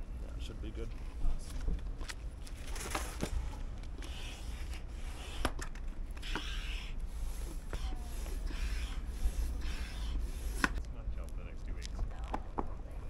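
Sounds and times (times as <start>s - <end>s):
hand pump air whoosh: 3.2s - 10.8s.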